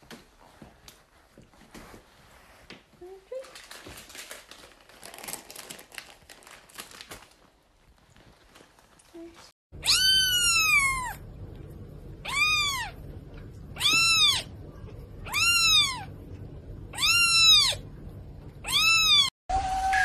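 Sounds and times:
low steady hum: 7.9 - 19.9
kitten meowing: 9.8 - 11.2, 12.2 - 13.0, 13.8 - 14.5, 15.2 - 16.1, 16.9 - 17.8, 18.6 - 19.3.

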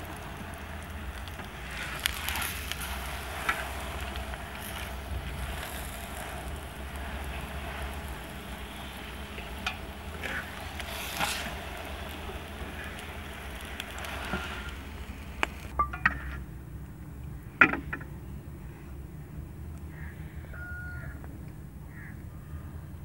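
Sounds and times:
flatbread sizzling on a griddle: 0.0 - 15.7.

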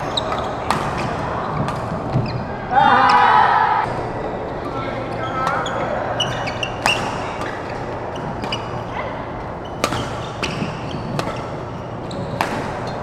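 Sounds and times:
shoe squeaks on court: 5.2 - 7.8
rackets striking shuttlecock: 6.7 - 8.8, 9.8 - 11.7, 12.3 - 13.0.

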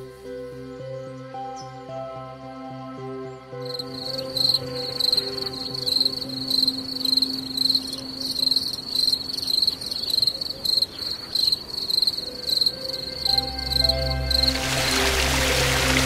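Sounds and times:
insect chirping: 3.6 - 15.6.

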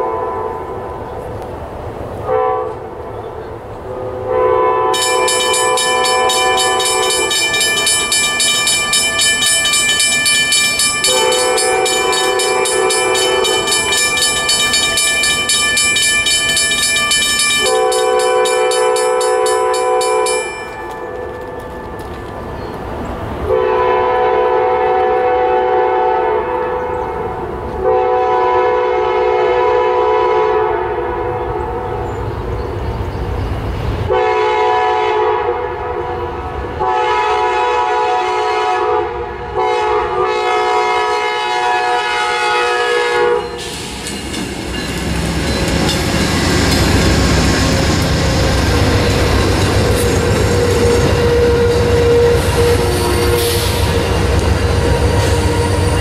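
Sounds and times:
train air horn blasts: 0.0 - 1.0, 2.2 - 3.1, 3.9 - 7.5, 11.0 - 14.1, 17.6 - 21.5, 23.5 - 32.0, 34.1 - 43.6, 49.8 - 56.0
locomotive and wheels rumbling: 0.0 - 28.6, 30.8 - 37.1, 40.2 - 56.0
crossing signal bell ringing: 5.0 - 22.7, 43.4 - 56.0.

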